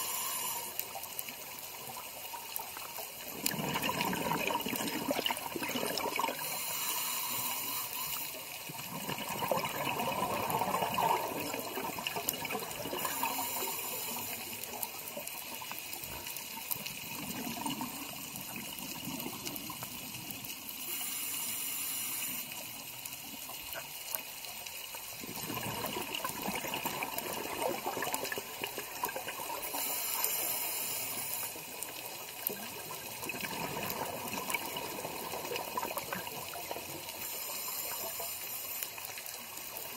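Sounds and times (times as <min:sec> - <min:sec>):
regulator hiss on inhale: 0:00.0 - 0:03.1, 0:06.1 - 0:09.1, 0:12.9 - 0:17.0, 0:19.4 - 0:25.2, 0:29.1 - 0:33.1, 0:35.2 - 0:39.9
exhaled bubbles rushing underwater: 0:03.2 - 0:06.5, 0:08.7 - 0:13.5, 0:16.7 - 0:20.3, 0:25.2 - 0:29.9, 0:32.2 - 0:37.2.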